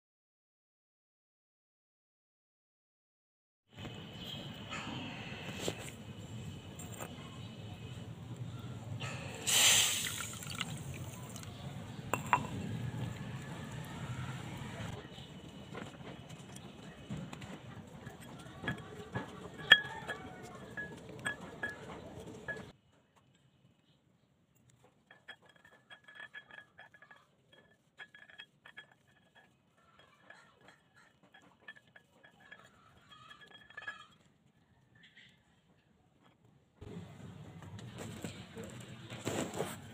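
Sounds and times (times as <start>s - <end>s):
water pouring into steel bowl: 9.5s - 11.6s
plate clinking: 10.1s - 12.7s, 18.0s - 22.7s, 25.1s - 34.3s.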